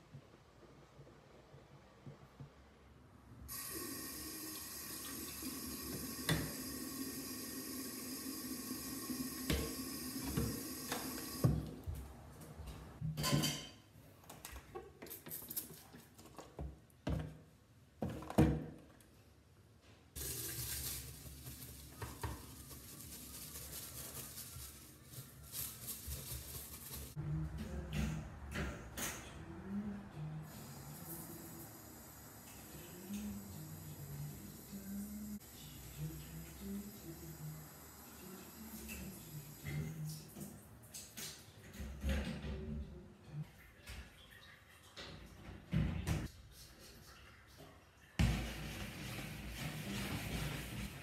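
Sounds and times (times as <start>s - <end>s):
scrubbing sink by hand: 46.4s - 51.0s.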